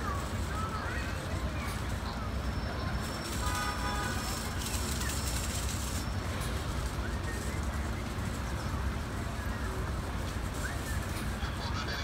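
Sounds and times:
street low rumble: 0.0 - 12.0.

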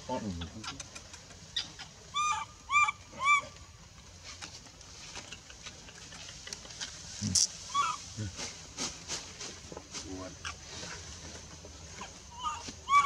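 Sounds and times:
baby monkey crying: 1.6 - 3.6, 7.7 - 8.0, 12.3 - 13.0
faint rustling: 3.9 - 12.9.

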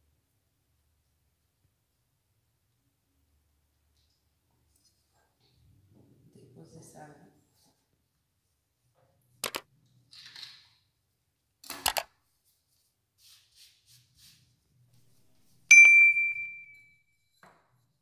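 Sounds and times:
bright bell ding: 15.7 - 17.0.

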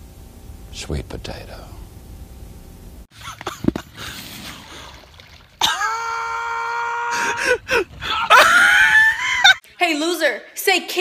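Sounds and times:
person crying out: 5.6 - 9.6.

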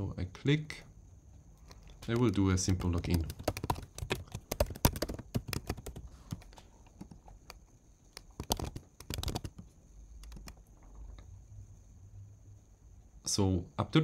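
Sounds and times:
typing on computer keyboard: 1.7 - 10.7.

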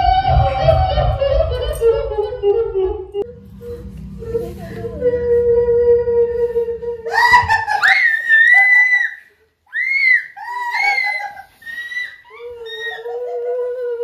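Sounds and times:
wailing howl: 3.2 - 9.2, 9.8 - 14.0
people screaming: 7.0 - 13.3.

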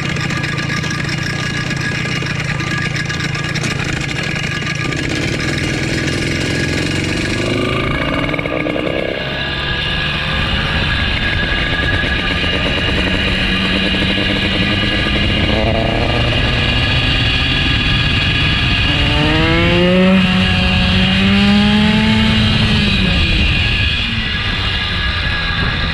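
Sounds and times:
small motorized bicycle engine: 0.0 - 25.9.

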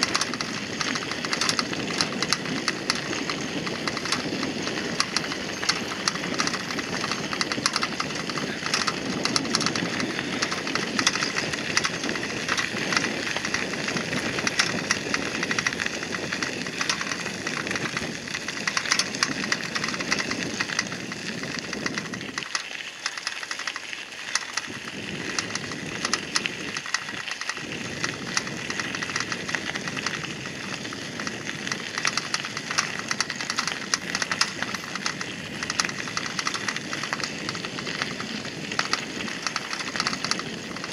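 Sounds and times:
bicycle tyres crunching on gravel: 0.0 - 40.9
bike rattling: 0.0 - 40.9.

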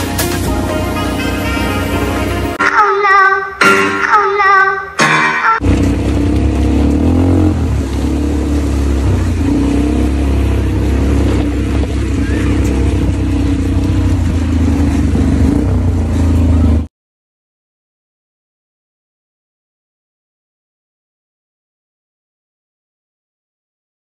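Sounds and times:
quad bike engine running: 5.6 - 16.9.

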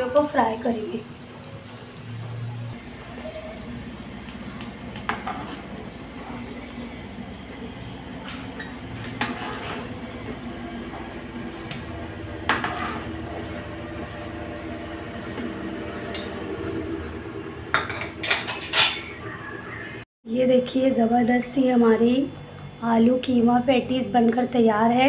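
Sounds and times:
patties sizzling in oil: 0.0 - 17.4.

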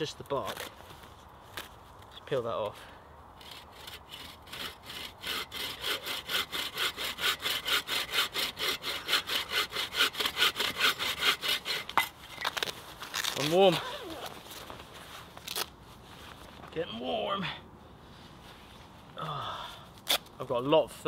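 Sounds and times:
saw cutting a log: 3.4 - 12.1.

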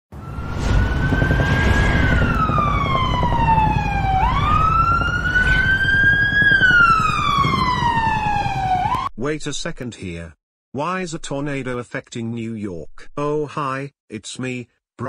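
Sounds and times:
siren wailing: 0.1 - 9.1
low rumbling noise: 0.2 - 8.7.

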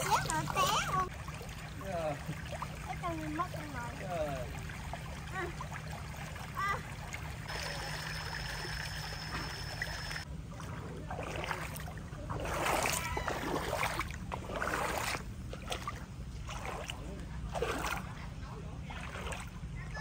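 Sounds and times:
water splashing stirred by hand: 0.0 - 18.2, 18.8 - 19.6
thin high tone: 7.5 - 10.3.

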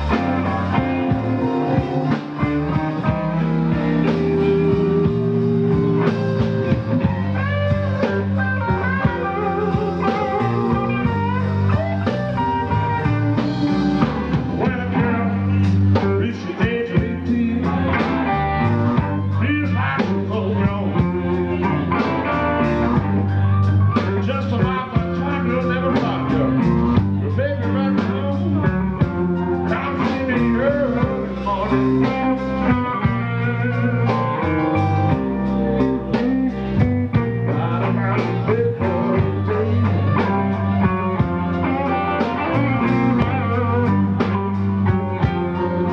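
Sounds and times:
blues-rock band playing live: 0.0 - 45.9
man singing: 14.1 - 23.0, 23.9 - 45.9.

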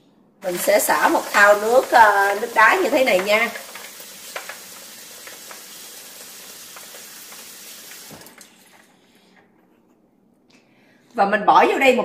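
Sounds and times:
tap water splashing into basin: 0.4 - 8.5
ice cubes clicking: 0.5 - 8.5.

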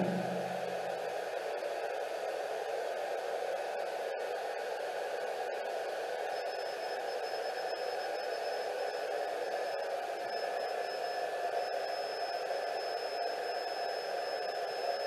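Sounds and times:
thin high whine: 3.6 - 15.0.

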